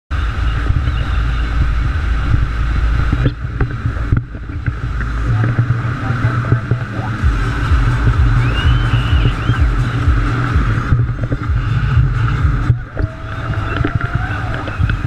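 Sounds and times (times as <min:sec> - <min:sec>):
speedboat engine and hull noise: 0:00.1 - 0:15.0
wind buffeting microphone: 0:00.1 - 0:15.0.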